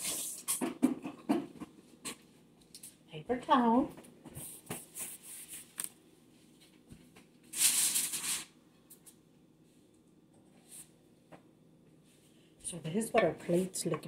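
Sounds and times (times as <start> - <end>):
crinkly paper rustling: 4.4 - 6.0, 7.4 - 8.5.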